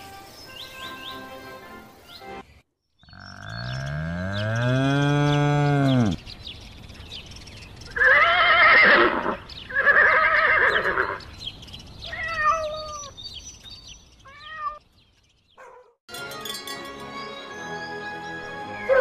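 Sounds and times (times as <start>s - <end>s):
horse whinnying: 8.0s - 11.2s
cat meowing: 12.1s - 13.1s, 14.3s - 14.8s.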